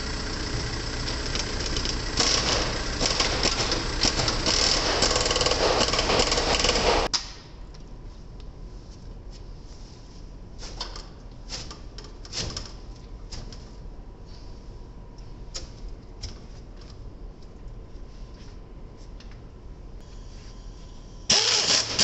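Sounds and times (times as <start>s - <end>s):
diesel truck engine running: 0.0s - 7.1s.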